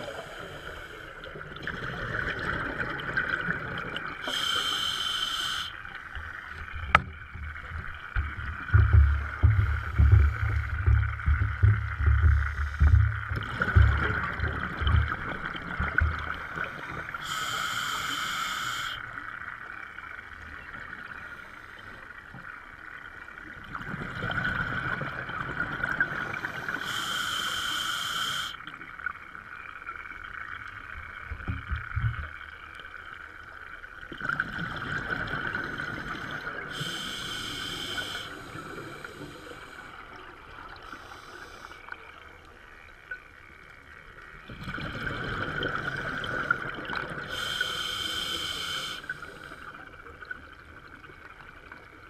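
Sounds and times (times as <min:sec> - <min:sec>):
scuba regulator breathing: 0:00.0 - 0:01.2, 0:04.2 - 0:05.8, 0:16.5 - 0:19.0, 0:26.3 - 0:28.6, 0:35.7 - 0:40.2, 0:40.9 - 0:41.9, 0:47.2 - 0:49.8.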